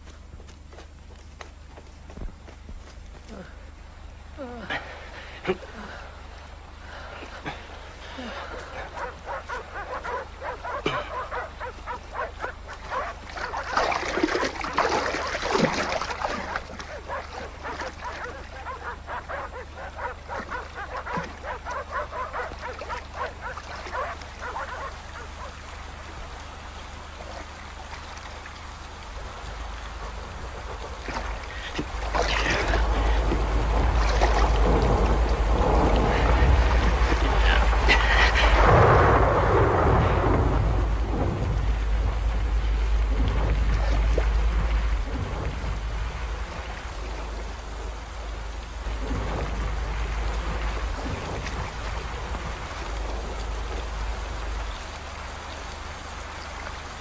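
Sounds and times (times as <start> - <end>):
low rumble: 1.6 - 57.0
dogs barking: 8.4 - 25.7.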